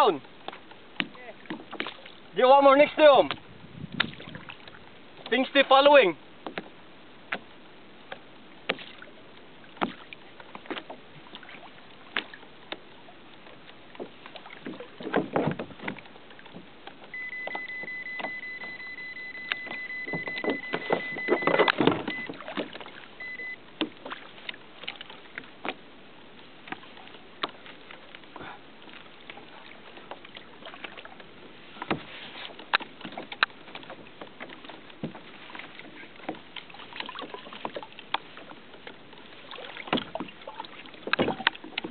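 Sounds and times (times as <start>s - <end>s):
water lapping against a hull: 0.0s - 41.9s
short beeps: 17.1s - 22.4s, 23.2s - 23.6s
steady high tone: 17.2s - 22.4s.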